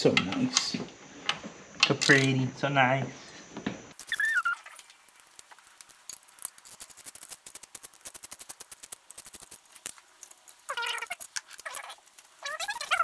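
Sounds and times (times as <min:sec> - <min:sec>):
hand tools clicking and rattling: 0:04.0 - 0:13.0.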